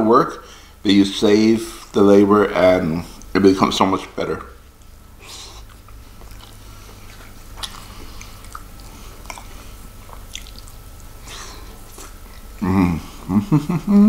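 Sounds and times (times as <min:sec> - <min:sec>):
man chewing food: 0:04.6 - 0:14.0
wet mouth clicks and smacks: 0:05.6 - 0:12.5.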